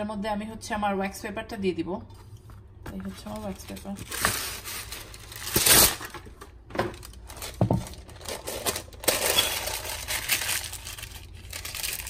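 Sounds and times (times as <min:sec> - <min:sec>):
wax paper crinkling: 0:02.9 - 0:12.0.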